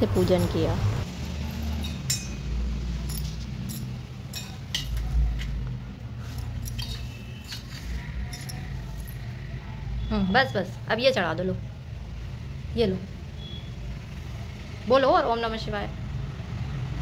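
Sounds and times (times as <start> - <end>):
metal dishes clinking: 1.5 - 5.2, 6.4 - 9.2.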